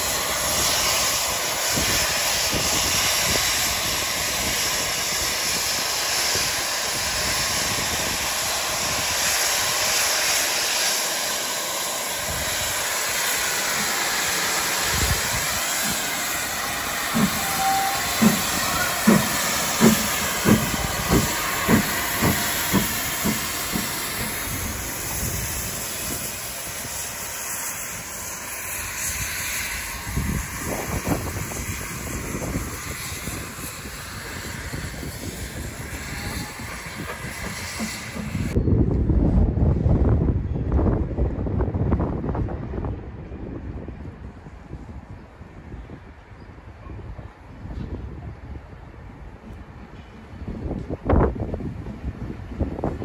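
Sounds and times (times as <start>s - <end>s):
steam hissing: 0.0s - 38.6s
steam locomotive chuffing: 0.0s - 38.6s.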